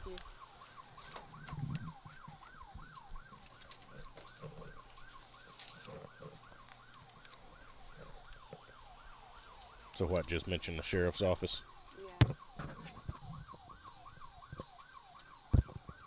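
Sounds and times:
distant siren yelping: 0.0 - 16.0.

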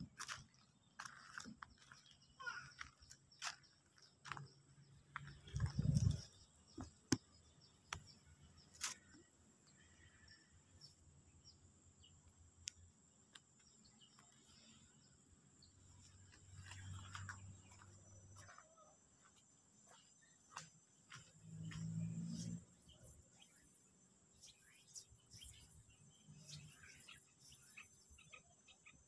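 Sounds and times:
small sharp clicks: 12.6 - 14.4
high-pitched insect drone: 19.2 - 28.7.

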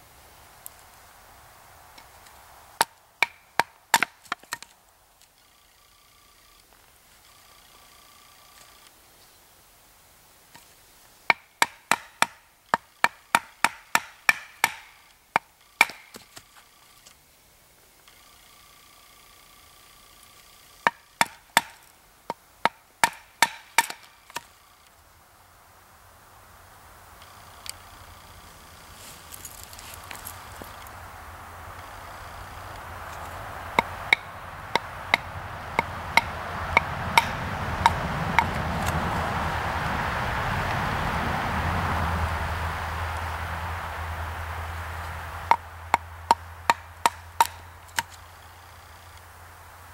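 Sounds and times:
wooden baton striking knife: 11.3 - 16.2, 33.8 - 39.0, 46.3 - 48.2
rushing noise: 25.4 - 46.6.

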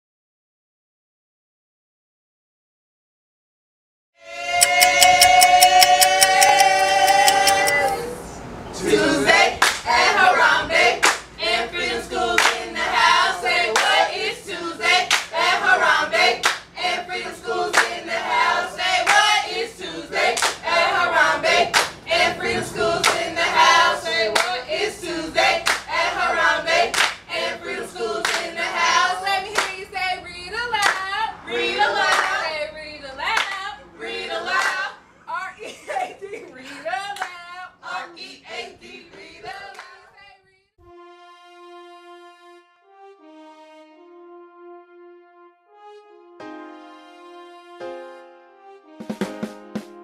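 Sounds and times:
group singing a chant: 4.2 - 29.8, 31.2 - 32.8, 33.9 - 35.0, 37.7 - 40.1
hands clapping: 4.6 - 8.1, 9.6 - 9.9, 11.0 - 11.3, 12.4 - 12.6, 13.7 - 14.0, 15.1 - 15.3, 16.4 - 16.7, 17.7 - 18.0, 20.4 - 20.6, 21.7 - 22.0, 23.0 - 23.2, 25.6 - 25.9, 26.9 - 27.2, 28.2 - 28.5, 30.8 - 31.1, 36.7 - 37.4.

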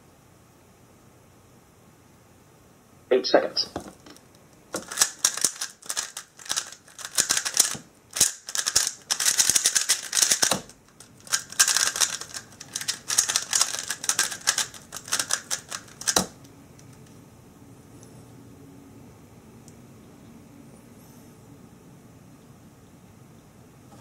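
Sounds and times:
puzzle cube plastic clacking: 3.8 - 17.1.

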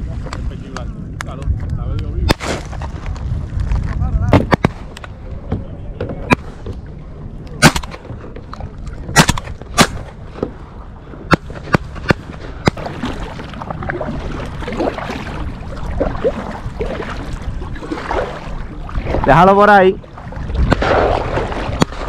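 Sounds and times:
shotgun shots: 2.3 - 2.7, 7.6 - 8.0, 9.1 - 10.1, 20.6 - 21.2
paddle splashing in water: 4.4 - 22.0.

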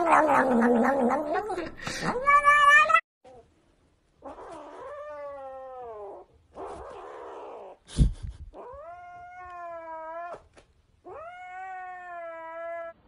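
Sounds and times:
cat yowling: 2.1 - 3.0, 11.1 - 13.0.

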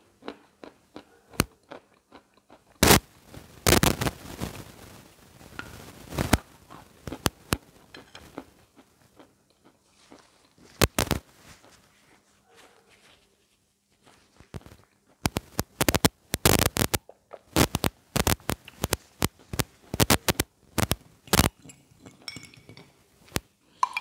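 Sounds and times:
chalk crunching in mouth: 8.2 - 12.4, 14.0 - 22.2.

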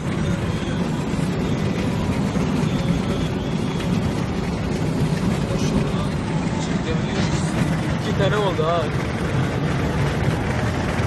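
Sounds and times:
car road and wind noise: 0.0 - 11.0.

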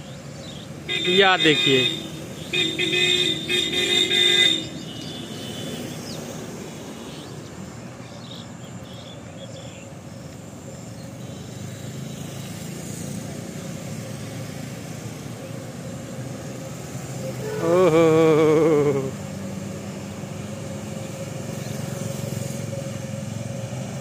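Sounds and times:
vehicle horn honking: 0.8 - 6.0, 17.2 - 17.9.

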